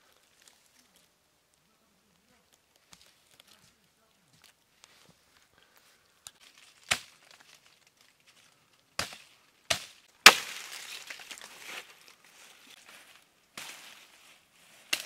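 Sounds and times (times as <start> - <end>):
leaves rustling: 0.0 - 15.0
dry leaves crunching: 6.4 - 15.0.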